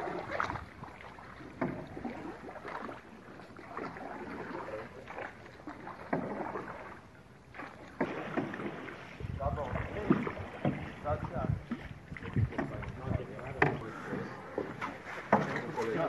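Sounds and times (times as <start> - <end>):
wind on microphone: 0.0 - 1.0, 9.1 - 13.9
water splashing against boat: 0.0 - 16.0
knocks on boat: 1.5 - 2.1, 5.9 - 6.9, 7.6 - 16.0.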